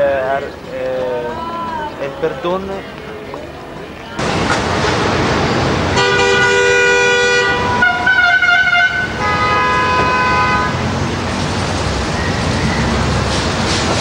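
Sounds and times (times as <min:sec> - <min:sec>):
traffic noise: 0:00.0 - 0:14.0
vehicle horns honking: 0:04.2 - 0:10.9.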